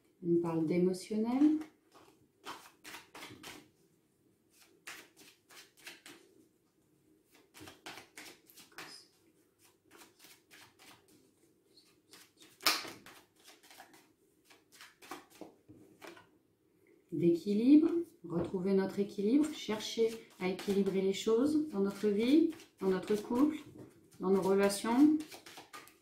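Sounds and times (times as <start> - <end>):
cards being shuffled: 1.3 - 3.7, 4.5 - 6.2, 7.3 - 11.2, 11.8 - 16.3, 19.4 - 26.0
cards slapping: 1.4 - 3.7, 4.5 - 6.2, 7.3 - 9.0, 9.6 - 11.1, 11.8 - 16.3, 22.4 - 23.6, 24.3 - 26.0.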